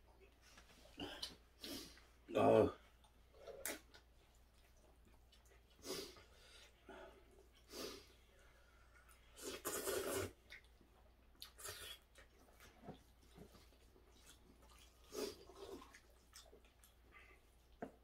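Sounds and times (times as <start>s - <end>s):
man slurping noodles: 9.3s - 10.4s.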